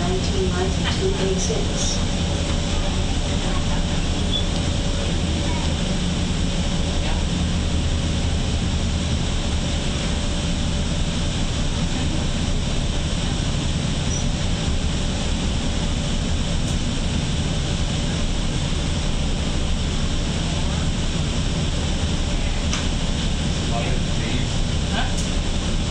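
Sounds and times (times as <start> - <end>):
bus rumble and road noise: 0.0 - 25.9.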